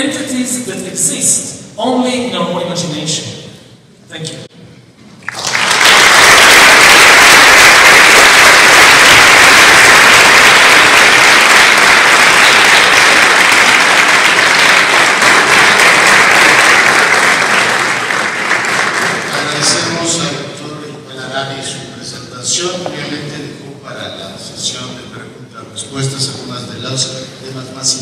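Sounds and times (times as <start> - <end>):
audience applauding: 5.2 - 20.2.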